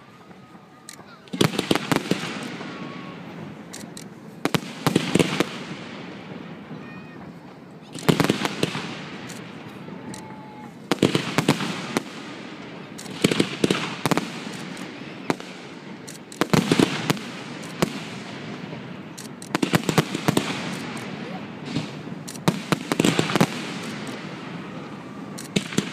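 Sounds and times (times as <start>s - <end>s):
continuous rush of noise: 0.0s - 25.9s
firework shells bursting: 7.9s - 25.9s.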